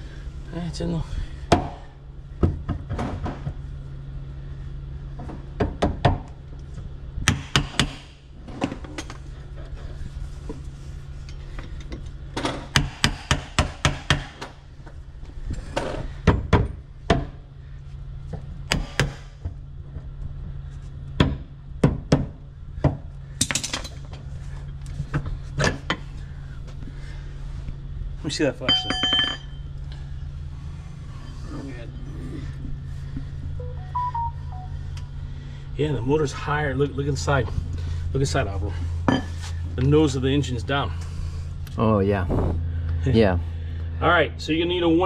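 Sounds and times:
low hum: 0:00.0 - 0:13.2, 0:22.4 - 0:44.8.

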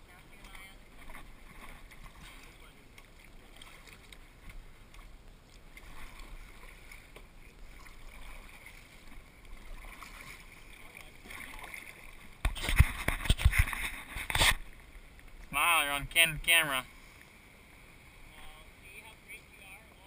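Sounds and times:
water lapping and dripping: 0:00.0 - 0:20.0
paddle knocks and splashes: 0:00.4 - 0:15.6.

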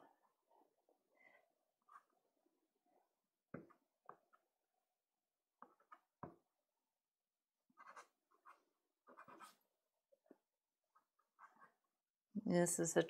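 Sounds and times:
pastel scratching on card: 0:07.8 - 0:09.6.

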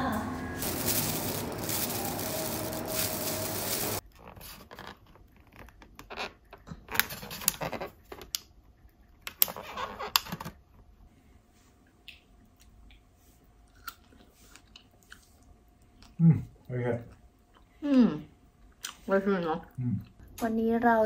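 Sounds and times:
plastic bag crinkling: 0:00.6 - 0:04.5.

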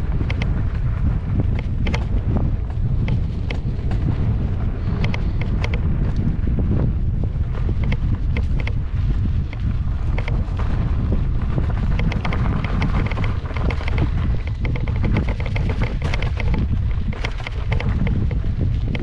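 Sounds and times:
wind rumble on microphone: 0:00.0 - 0:19.0
rattling clicks: 0:12.0 - 0:18.3.

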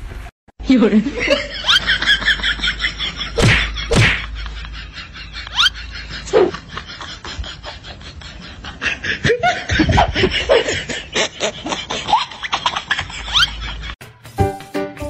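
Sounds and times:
person snickering: 0:03.3 - 0:14.0.

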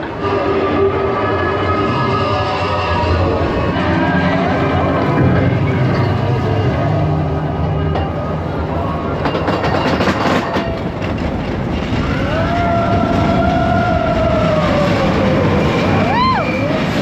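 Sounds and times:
roller coaster clattering: 0:00.0 - 0:17.0
roller coaster rushing rumble: 0:00.0 - 0:17.0
rider screaming: 0:12.0 - 0:17.0.

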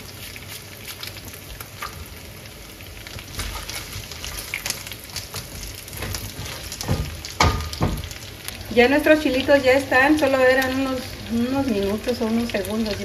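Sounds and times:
meat sizzling in a frying pan: 0:00.0 - 0:13.0
spatula stirring meat: 0:05.2 - 0:08.1.

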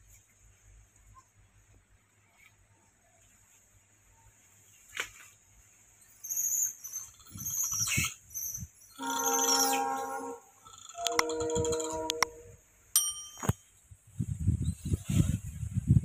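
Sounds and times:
monkeys squeaking and squealing: 0:06.1 - 0:10.1.

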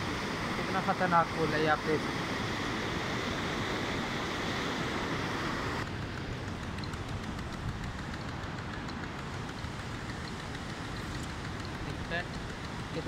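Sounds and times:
water rushing over a weir: 0:00.0 - 0:05.9.

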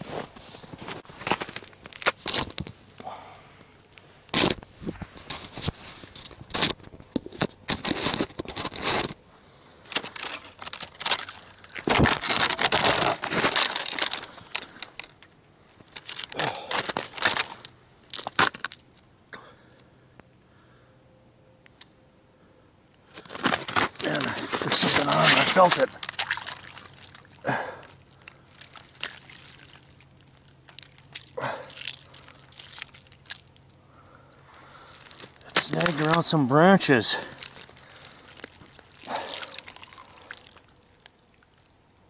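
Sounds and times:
ice and slush crunching: 0:07.7 - 0:09.2, 0:09.8 - 0:18.8, 0:23.1 - 0:41.7.

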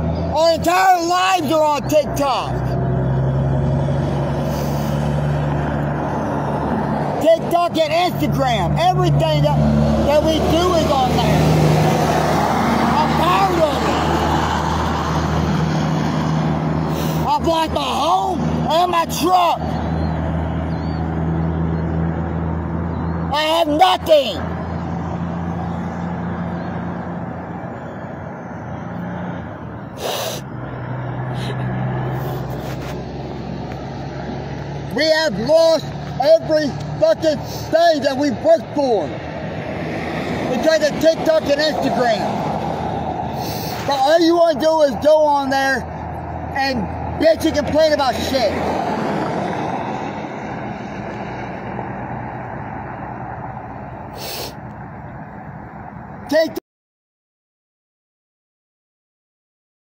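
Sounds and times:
vehicle engine humming: 0:00.0 - 0:56.6
short hiss: 0:30.0 - 0:30.4, 0:54.2 - 0:54.6.

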